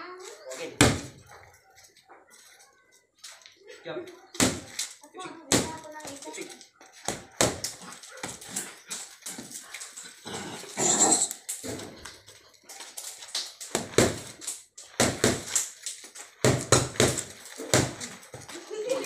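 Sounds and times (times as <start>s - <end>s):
boxing gloves hitting mitts: 0.8s - 1.2s, 4.3s - 4.8s, 5.5s - 6.2s, 7.0s - 8.4s, 13.7s - 14.4s, 15.0s - 15.7s, 16.4s - 18.4s
dog barking: 6.3s - 8.6s.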